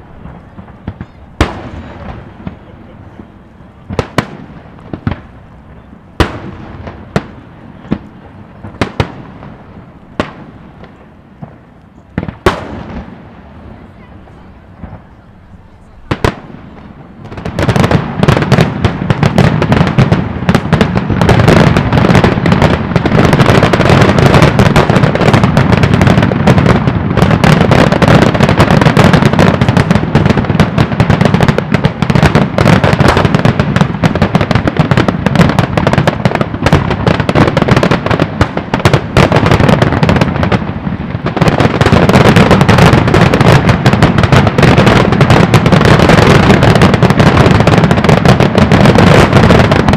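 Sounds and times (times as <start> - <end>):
fireworks shells bursting: 0.0 - 9.6.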